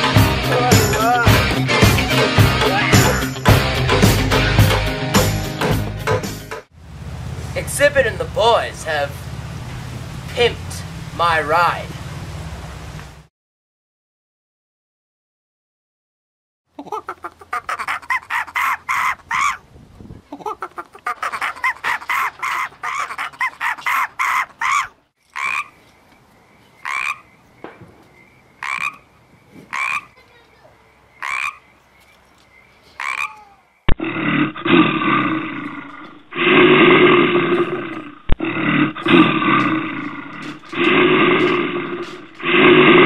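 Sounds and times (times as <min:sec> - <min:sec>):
frog croaking: 0:20.5 - 0:43.0
large animal growling roar: 0:34.0 - 0:43.0.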